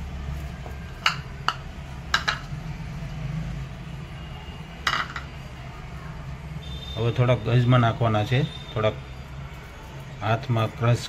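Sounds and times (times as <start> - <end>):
kitchen containers clinking: 1.0 - 2.6.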